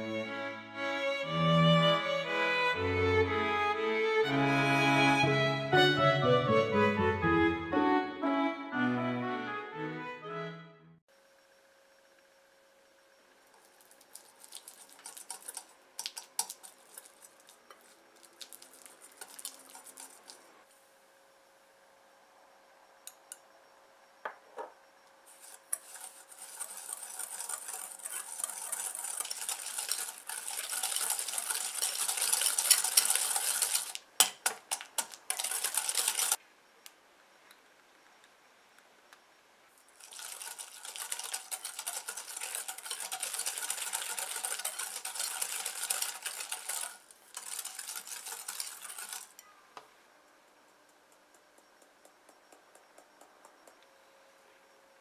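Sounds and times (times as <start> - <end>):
whisk scraping and rattling in bowl: 13.8 - 20.5, 25.3 - 36.4, 40.0 - 49.4
whisk sharp clicks: 25.4 - 36.4, 40.1 - 49.4.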